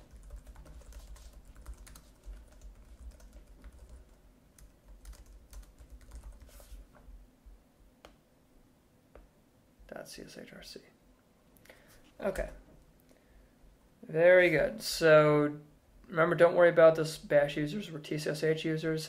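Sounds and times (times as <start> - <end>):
keyboard typing: 0.0 - 6.7
low steady hum: 0.0 - 18.5.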